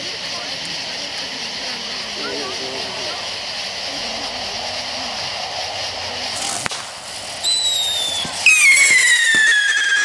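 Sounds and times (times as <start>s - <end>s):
firework whistle falling in pitch: 7.4s - 10.0s.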